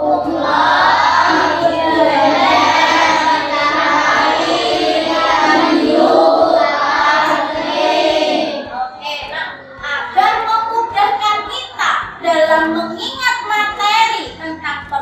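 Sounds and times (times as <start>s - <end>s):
children singing in unison: 0.0s - 8.8s.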